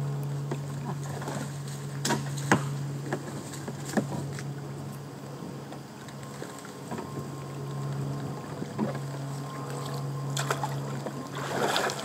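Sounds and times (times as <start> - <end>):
steady low hum: 0.0 - 12.0
water rushing: 5.9 - 12.0.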